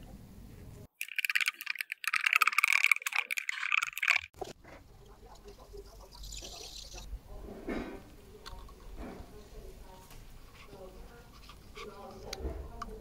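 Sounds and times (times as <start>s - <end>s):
stick scraping inside plastic cup: 1.0s - 7.1s, 9.9s - 12.4s
handling of a cup: 7.5s - 13.0s.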